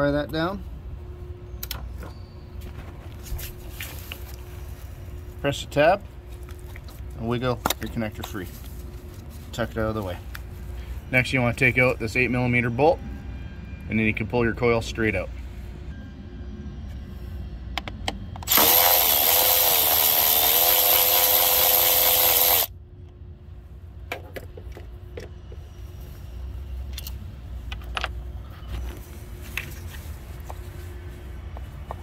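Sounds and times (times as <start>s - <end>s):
cordless power tool whine: 18.4s - 22.7s
parts clicking and knocking: 24.0s - 25.6s, 26.9s - 28.9s.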